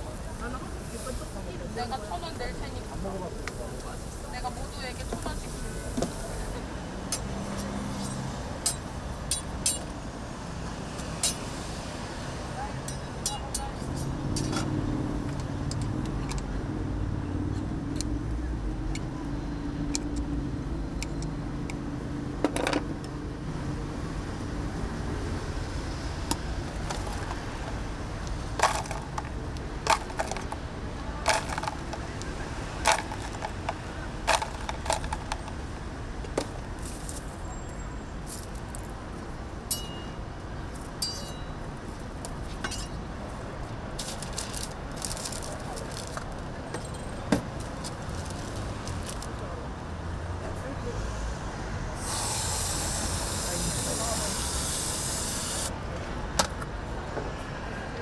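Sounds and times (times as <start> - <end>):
street traffic rumble: 0.0 - 58.0
utensils clinking on griddle: 7.1 - 9.9, 11.2 - 11.4, 12.9 - 13.8, 39.7 - 40.1, 41.0 - 41.6, 42.6 - 43.0.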